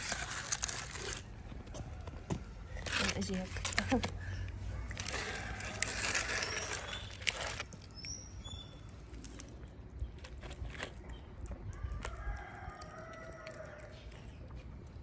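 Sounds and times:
high bird chirps: 7.9s - 9.0s.

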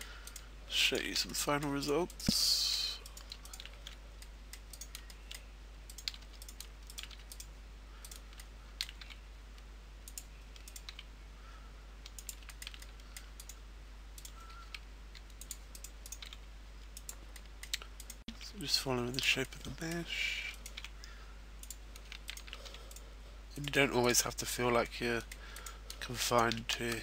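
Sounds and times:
keyboard keys and mouse clicking: 3.1s - 4.0s, 4.6s - 9.2s, 10.1s - 11.1s, 12.0s - 13.6s, 14.2s - 18.5s, 21.6s - 23.0s.

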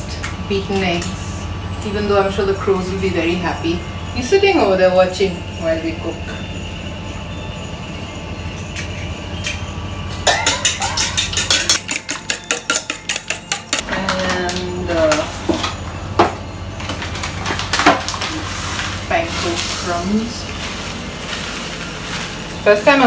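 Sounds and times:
fork beating egg in bowl: 10.4s - 13.8s.

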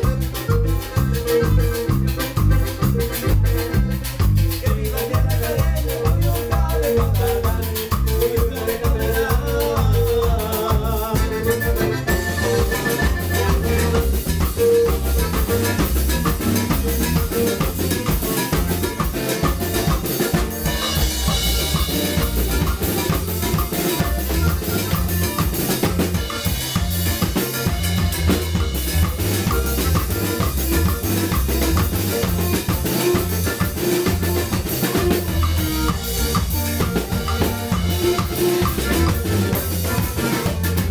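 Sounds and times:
drum kit and cymbals beat: 0.0s - 40.9s
live band playing dance music: 0.0s - 40.9s.

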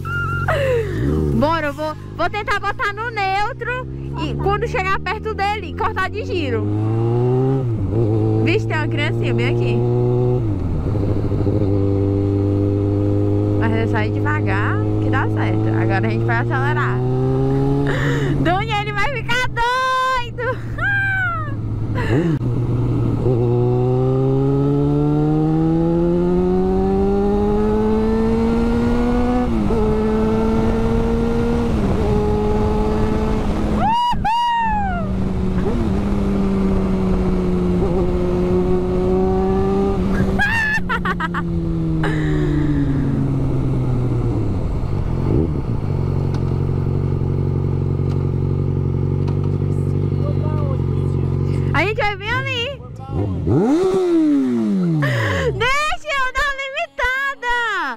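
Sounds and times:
motorcycle engine accelerating: 0.0s - 57.9s
short high cry: 33.8s - 35.2s.

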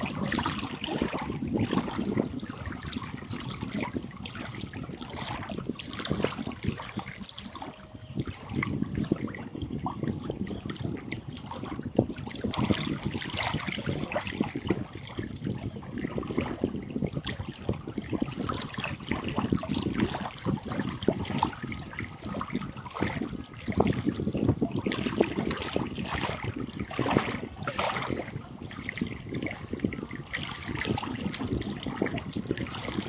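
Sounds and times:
waves lapping on pebbly shore: 0.0s - 2.3s.

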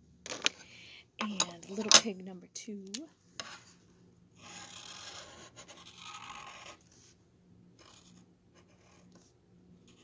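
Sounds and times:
marker scratching on wood: 4.4s - 6.9s.

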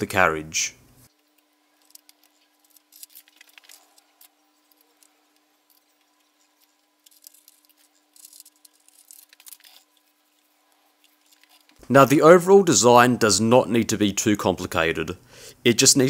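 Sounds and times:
faint steady hum: 0.0s - 16.0s
hex key clicking and scraping: 1.3s - 10.1s.

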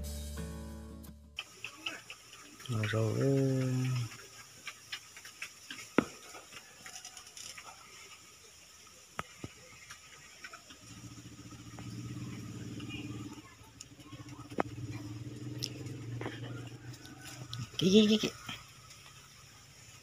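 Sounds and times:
low engine hum: 10.8s - 20.0s.

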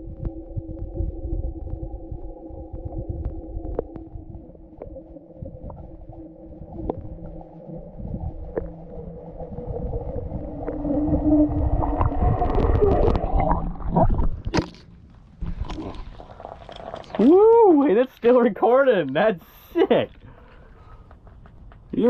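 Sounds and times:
steady hum: 0.0s - 15.5s
muffled underwater rumble: 0.0s - 17.8s.

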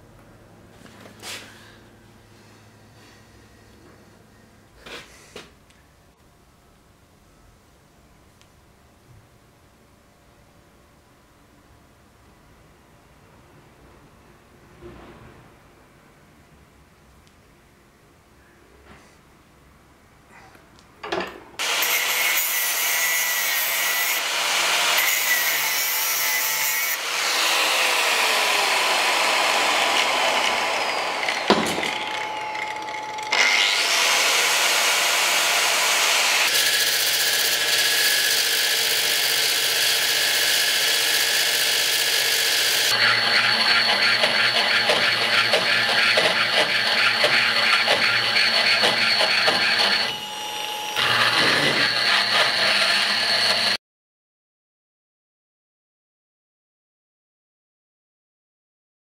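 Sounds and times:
angle grinder grinding metal: 21.6s - 53.8s
die grinder grinding metal: 21.6s - 53.8s.

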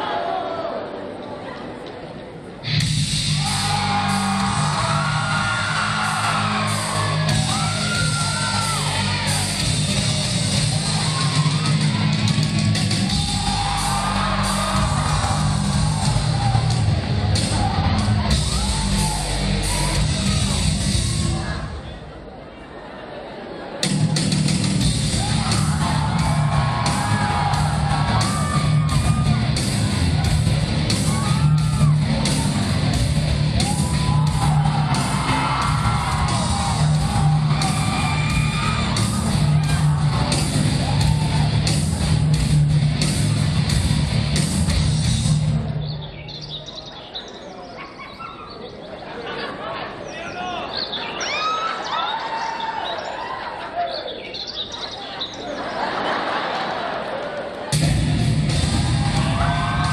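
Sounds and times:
crowd yelling and whooping: 0.0s - 1.2s, 2.6s - 45.9s, 46.6s - 59.9s
rock music with singing over speakers: 2.6s - 21.7s, 23.8s - 46.0s, 57.7s - 59.9s.

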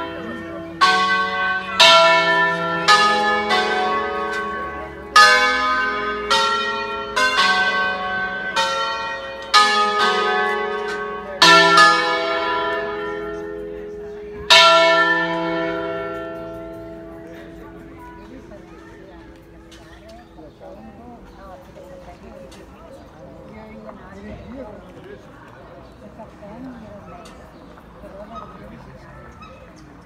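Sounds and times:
church bells ringing a tune: 0.0s - 23.7s.

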